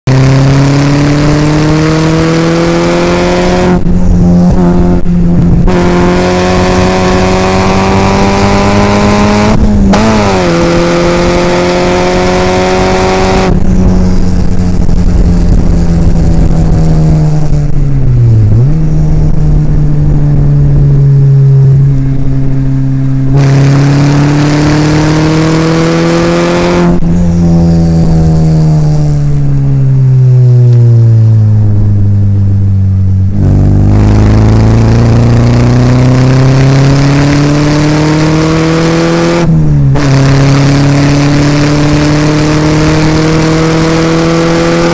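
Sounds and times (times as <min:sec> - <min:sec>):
sports car engine revving: 0:00.1 - 0:44.9.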